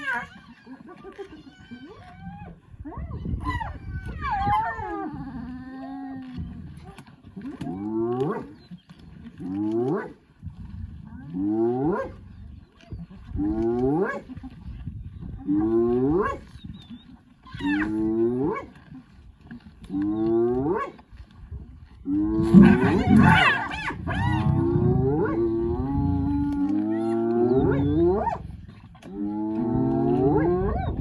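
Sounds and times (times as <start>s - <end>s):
jumbled hyena calling: 22.3s - 31.0s
hyena whooping: 22.5s - 26.1s.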